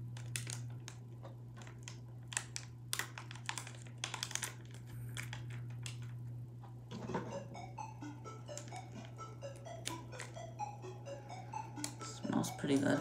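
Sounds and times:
steady low hum: 0.0 - 13.0
packet crinkling and tearing: 0.2 - 1.0, 1.6 - 6.1.

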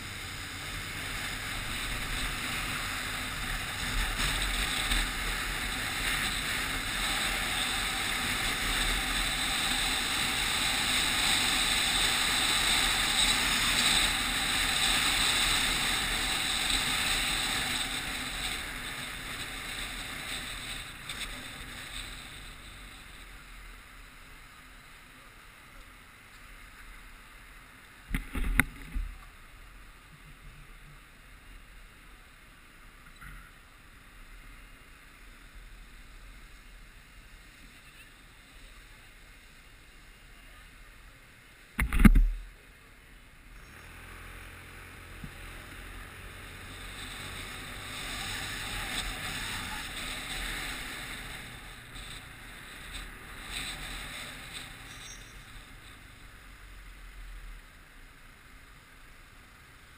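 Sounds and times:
motorcycle low hum: 0.0 - 26.1, 43.2 - 59.0
wind and road rush: 0.0 - 59.9.

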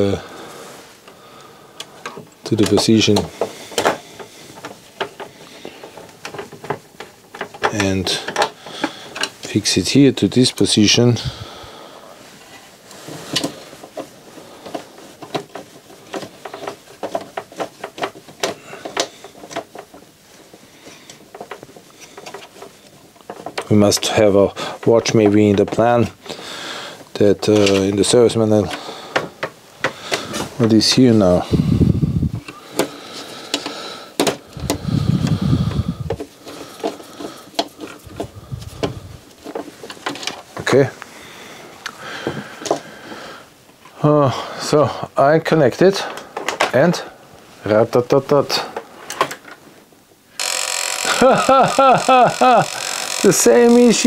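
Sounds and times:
small parts clicking and knocking: 1.8 - 9.6, 13.3 - 26.3, 32.4 - 40.8, 50.3 - 54.0
low rubbing or scraping: 34.4 - 39.8.

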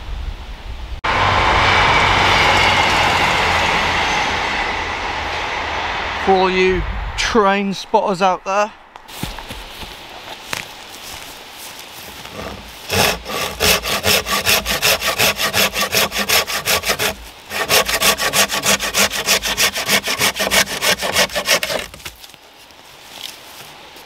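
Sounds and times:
hand saw cutting wood: 12.2 - 22.2.

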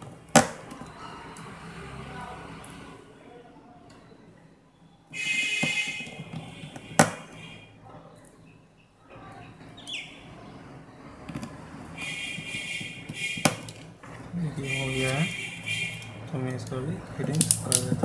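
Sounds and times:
loud high-pitched chirping: 9.8 - 10.3.

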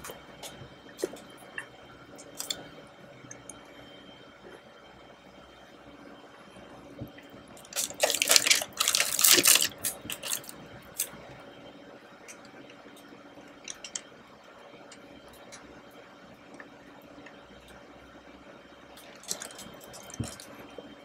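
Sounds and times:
crackly handling noise: 0.0 - 2.7, 7.6 - 11.2, 12.3 - 14.1, 19.0 - 20.9.

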